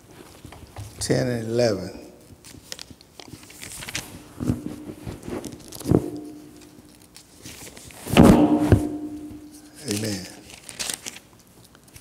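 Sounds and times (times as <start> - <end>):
book pages turning: 2.2 - 8.2, 8.8 - 12.0
paper rustling: 2.2 - 12.0.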